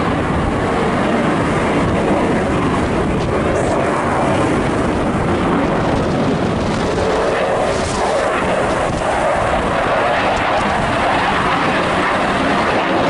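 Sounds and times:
fighter jet engine roar: 0.0 - 13.0.

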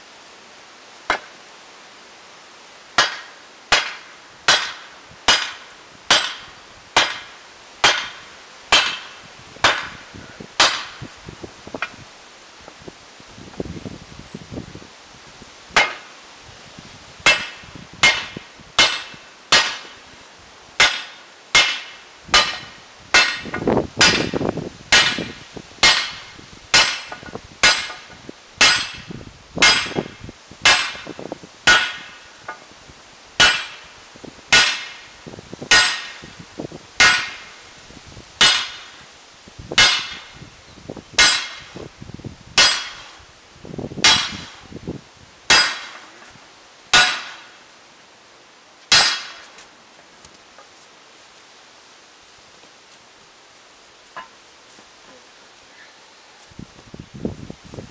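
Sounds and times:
hammer clanging on steel: 3.0 - 10.0, 10.6 - 11.0, 15.8 - 16.1, 17.3 - 20.0, 20.8 - 30.1, 30.7 - 32.6, 33.4 - 33.9, 34.5 - 35.1, 35.7 - 36.3, 37.0 - 37.5, 38.4 - 39.0, 39.8 - 40.3, 41.2 - 41.8, 42.6 - 43.2, 44.0 - 44.6, 45.5 - 46.2, 46.9 - 47.6, 48.9 - 49.6.

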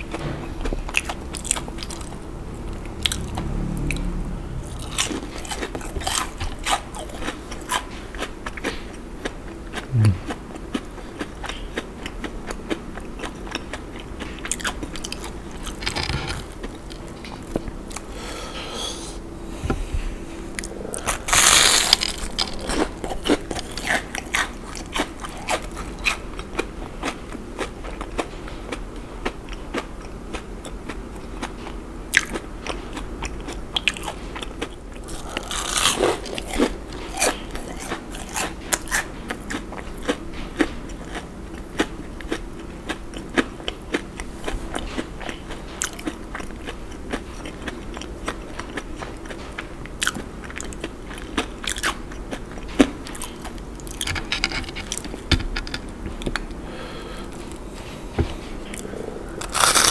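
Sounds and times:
crunchy bites of fried food: 4.7 - 17.0, 21.0 - 28.3, 32.2 - 52.0, 59.4 - 59.9
crisp chewing crunches: 4.7 - 18.1, 20.6 - 56.6, 58.6 - 59.9.

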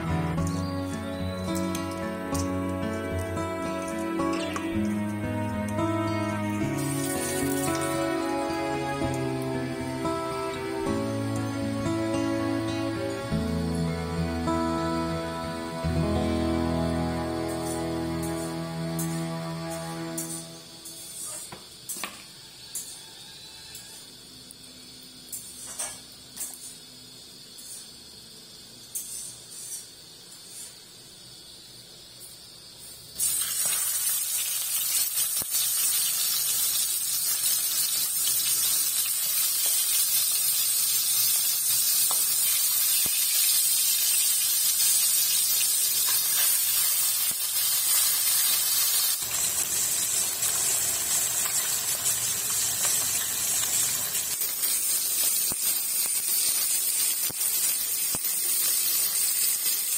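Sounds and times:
fish sizzling in hot oil: 0.0 - 5.2, 5.8 - 11.8, 32.6 - 59.9.

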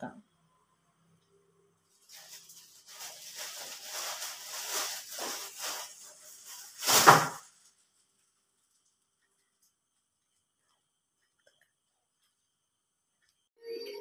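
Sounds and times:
paper rustling and handling: 2.0 - 8.9.

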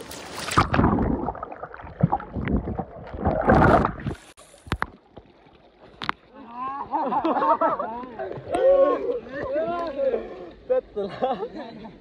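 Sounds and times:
water splashing in river: 0.0 - 6.4.

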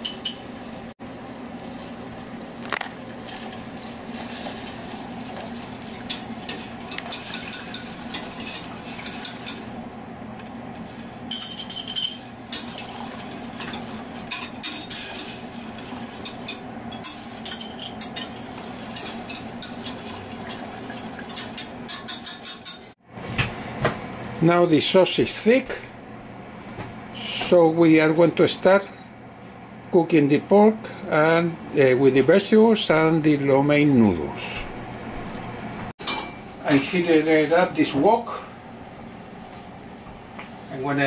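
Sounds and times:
steady low hum: 0.0 - 41.0
sauce bubbling: 1.0 - 11.3, 12.2 - 21.8, 23.4 - 33.5, 34.7 - 35.9.

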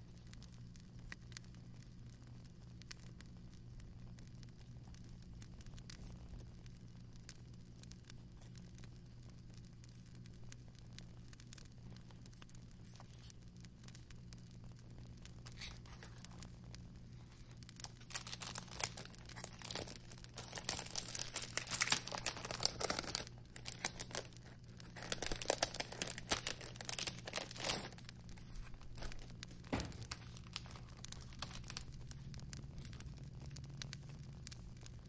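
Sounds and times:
packaging crinkling and tearing: 11.3 - 14.1, 15.1 - 35.0.

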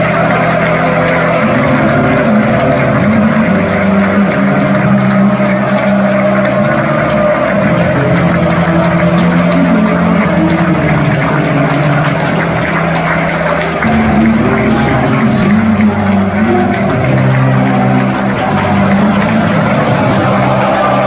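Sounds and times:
crowd noise: 0.0 - 21.0
football crowd chanting: 17.7 - 21.0.

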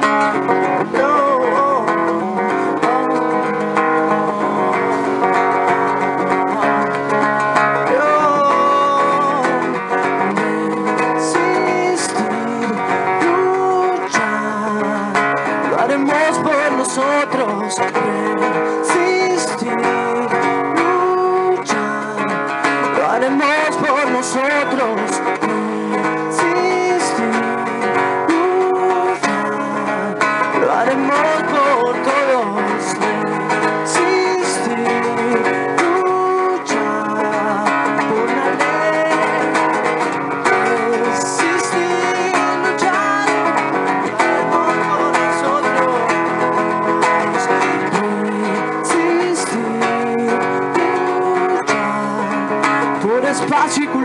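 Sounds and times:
acoustic guitar strumming: 0.0 - 54.0
man singing: 0.0 - 54.0.

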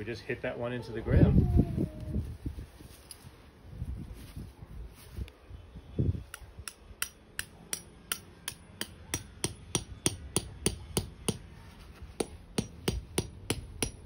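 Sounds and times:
hammer tapping metal tent peg: 6.3 - 11.5, 12.2 - 14.0.

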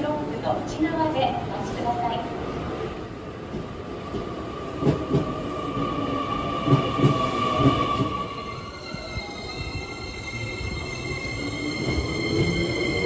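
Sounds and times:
train rumbling along: 0.0 - 13.0
electric train whine: 2.6 - 13.0.

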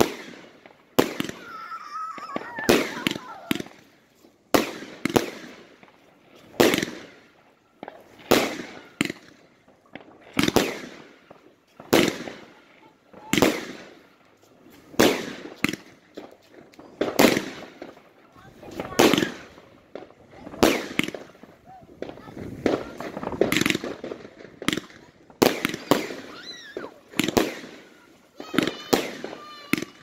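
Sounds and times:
fireworks bangs with hiss: 0.0 - 30.0.

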